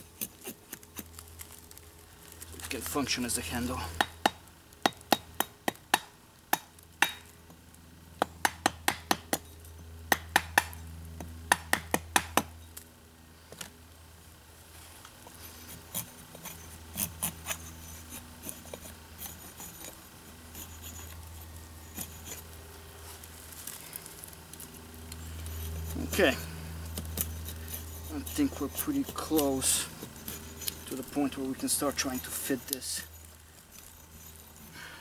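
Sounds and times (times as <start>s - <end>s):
axe head scraping wood: 0.0s - 1.6s, 15.3s - 22.5s, 25.2s - 34.8s.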